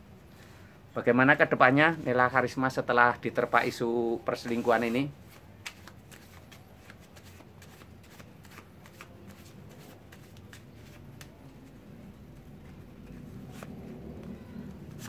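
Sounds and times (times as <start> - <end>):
low background hum: 0.0 - 15.0
cards being shuffled: 4.2 - 15.0.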